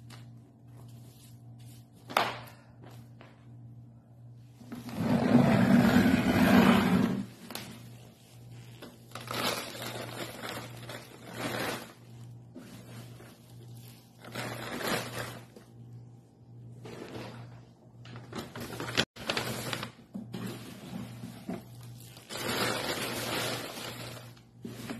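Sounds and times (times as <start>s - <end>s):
steady low hum: 0.0s - 18.6s
shredded paper rustling: 7.1s - 15.6s, 18.2s - 24.9s.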